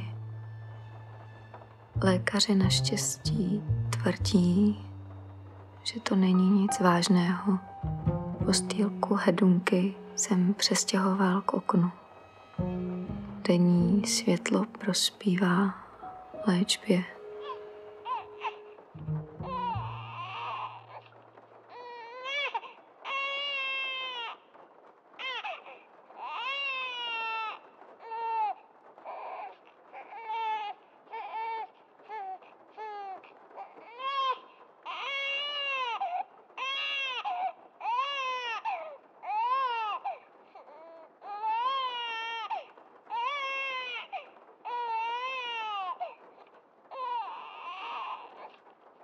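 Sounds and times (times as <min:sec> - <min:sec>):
low hum: 0:00.0 - 0:21.4
newborn baby crying: 0:17.2 - 0:18.7, 0:19.5 - 0:21.1, 0:33.9 - 0:46.1, 0:47.0 - 0:48.6.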